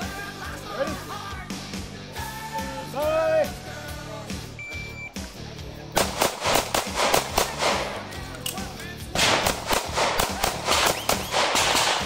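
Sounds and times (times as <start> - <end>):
background music: 0.0 - 12.0
rapid pistol shots: 6.0 - 8.2, 9.2 - 12.0.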